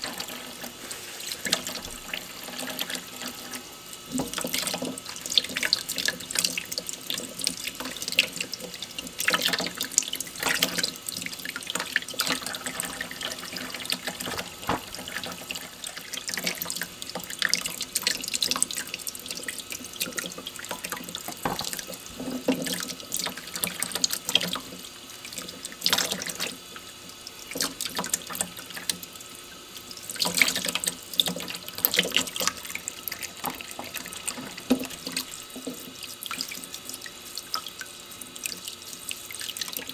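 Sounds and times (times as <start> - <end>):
tap water running into steel sink: 0.0 - 39.9.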